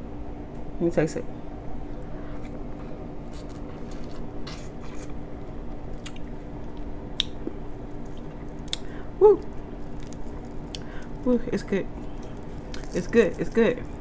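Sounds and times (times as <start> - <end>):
hands squishing in sauce: 7.2 - 11.2, 11.9 - 14.0
wet licking and smacking: 8.0 - 11.2, 11.9 - 14.0
person humming: 9.2 - 9.5.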